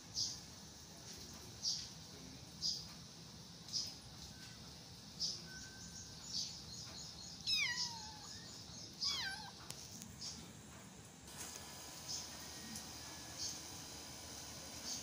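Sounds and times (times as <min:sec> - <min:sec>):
faint high chirps: 0:03.7 - 0:10.5
kitten meowing: 0:07.4 - 0:09.6.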